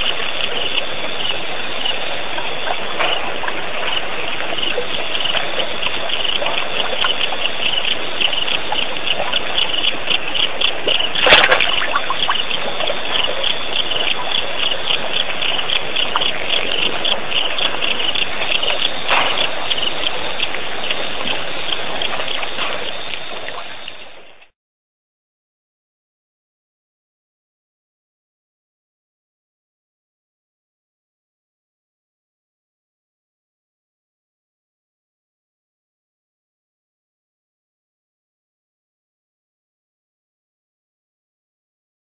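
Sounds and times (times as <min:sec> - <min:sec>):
frogs and insects calling: 0:00.0 - 0:24.5
water sounds: 0:00.0 - 0:24.5.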